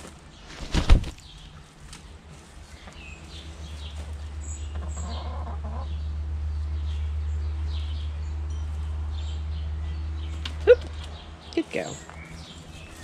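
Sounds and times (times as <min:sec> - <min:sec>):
hens clucking: 0:03.9 - 0:06.0.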